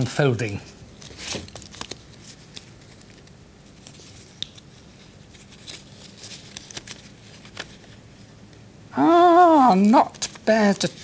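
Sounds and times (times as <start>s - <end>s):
paper rustling and crinkling: 1.0s - 8.3s, 10.1s - 11.0s
light ticks of paper: 1.5s - 8.0s.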